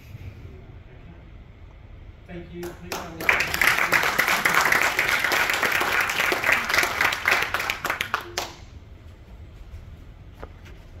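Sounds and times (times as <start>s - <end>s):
audience applauding: 2.6s - 8.6s.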